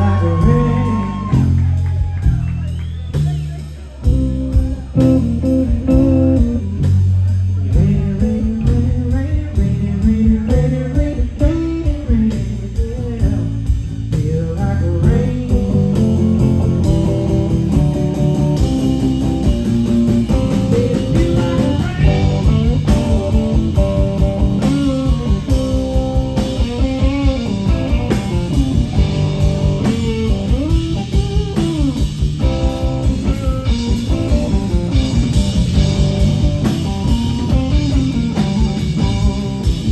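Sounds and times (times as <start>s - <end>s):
drum kit steady beat: 0.0s - 39.9s
electric bass: 0.0s - 39.9s
electric guitar lead lines: 4.0s - 9.3s, 15.0s - 39.9s.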